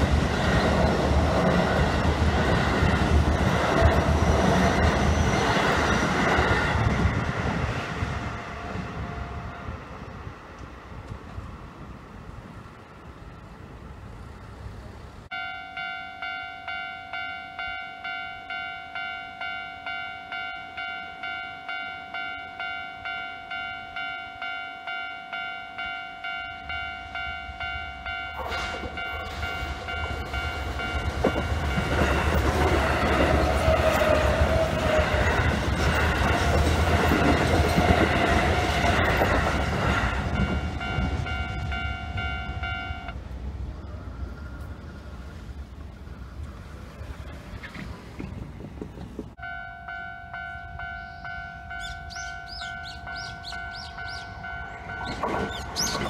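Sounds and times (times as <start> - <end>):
train passing: 0.0 - 56.0
train wheels on rails: 0.0 - 56.0
level-crossing alarm bell dinging: 15.3 - 33.7, 36.9 - 43.2, 49.4 - 56.0.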